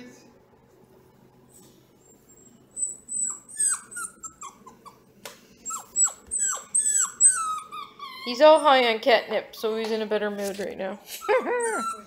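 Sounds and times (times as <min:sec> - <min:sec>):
puppy yelping: 0:02.1 - 0:09.0, 0:11.1 - 0:12.0.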